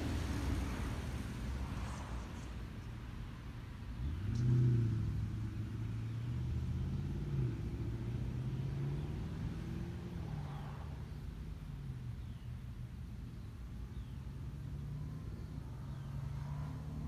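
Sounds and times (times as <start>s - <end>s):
vehicle engine accelerating: 4.0s - 11.6s.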